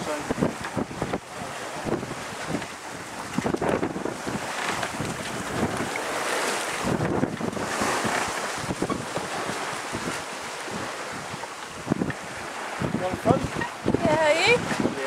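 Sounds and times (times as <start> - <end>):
choppy sea water rushing: 0.0 - 15.0
wind buffeting microphone: 0.0 - 15.0.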